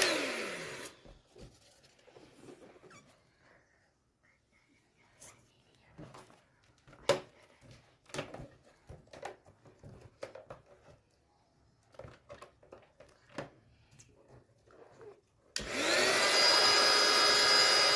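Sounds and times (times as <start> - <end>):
electric balloon pump whirring: 0.0 - 1.2, 15.5 - 17.9.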